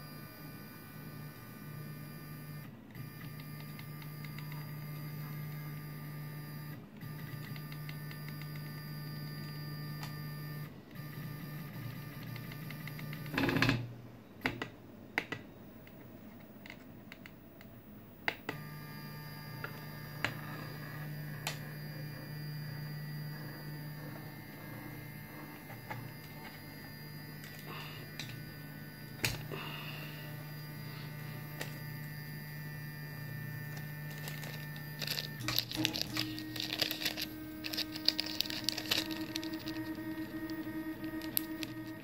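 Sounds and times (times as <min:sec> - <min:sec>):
stepper motors whining: 0:18.5 - 0:42.0.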